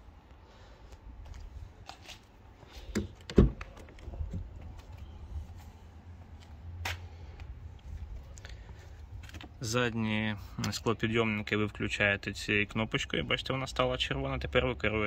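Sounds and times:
car door thunk: 0:02.9 - 0:03.6.

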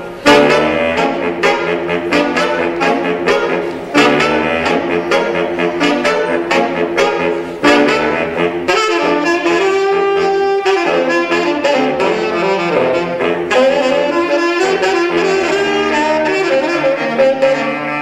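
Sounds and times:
saxophone quartet playing jazz: 0:00.0 - 0:18.0.

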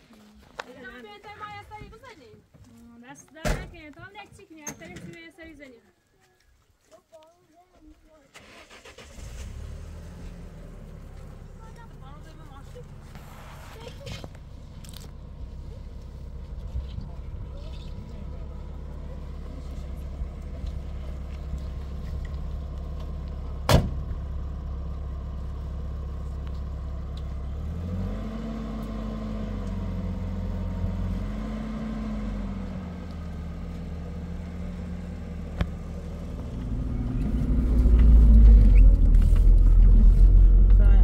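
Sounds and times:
car engine running: 0:08.6 - 0:41.0.

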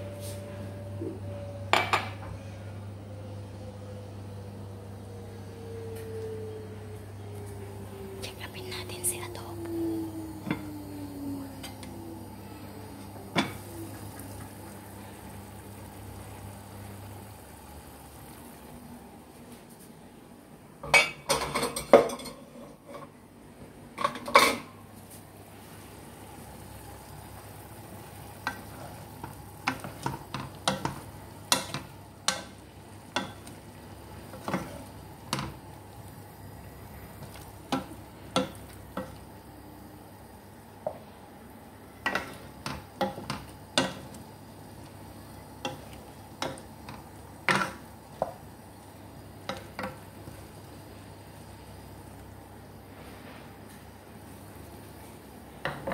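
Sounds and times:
cookware clatter: 0:20.8 - 0:23.1.

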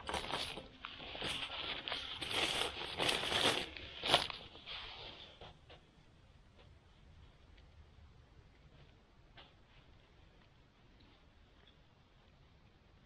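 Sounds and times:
plastic bag rustling and crinkling: 0:00.0 - 0:05.5.

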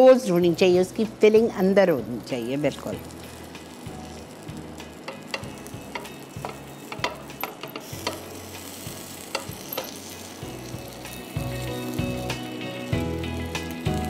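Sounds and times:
sandwich sizzling on grill pan: 0:00.0 - 0:14.0
sharp clicks and crackles: 0:03.2 - 0:14.0.

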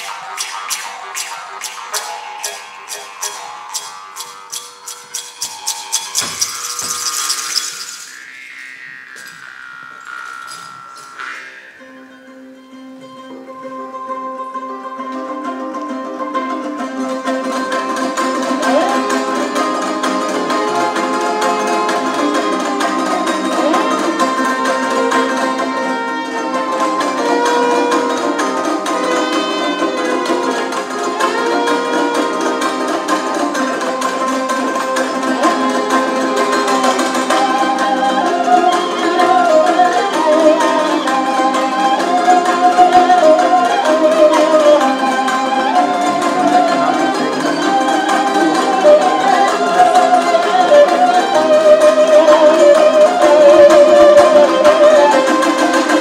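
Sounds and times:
held drone tones: 0:00.0 - 0:14.0
higher melody line: 0:00.0 - 0:56.0
plucked lutes and zither ensemble: 0:00.0 - 0:56.0.

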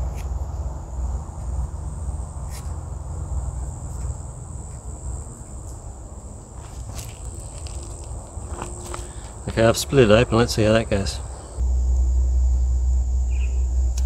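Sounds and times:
high-pitched insect drone: 0:00.0 - 0:14.0
low rumble: 0:11.2 - 0:14.0.

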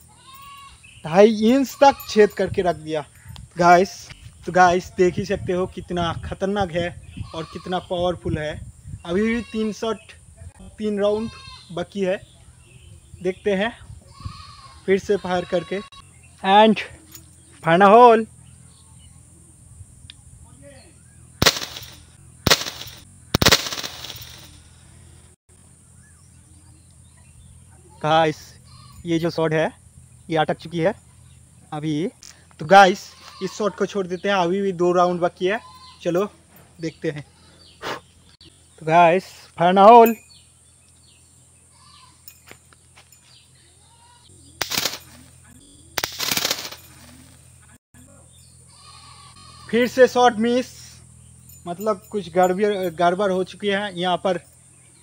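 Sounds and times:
pistol bangs: 0:21.4 - 0:24.5, 0:44.6 - 0:45.2
short rattle: 0:21.4 - 0:24.7, 0:44.6 - 0:45.3, 0:46.0 - 0:47.3.

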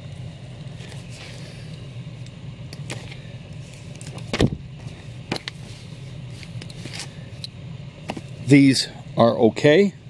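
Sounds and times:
steady low hum: 0:00.0 - 0:10.0
comic books slapping and thumping: 0:04.1 - 0:04.6.

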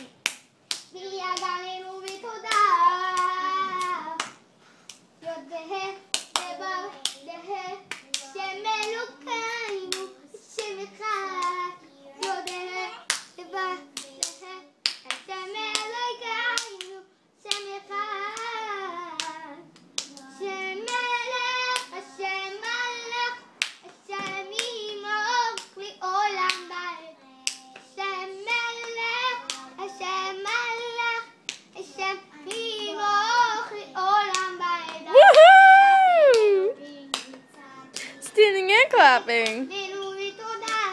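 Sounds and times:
toddler clapping hands: 0:34.3 - 0:37.4
high voice singing: 0:35.1 - 0:36.8.

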